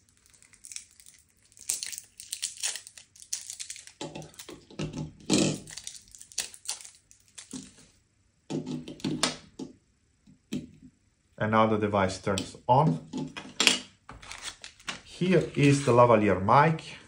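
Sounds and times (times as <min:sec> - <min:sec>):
packaging crinkling and rustling: 0:00.0 - 0:08.0, 0:14.1 - 0:16.0.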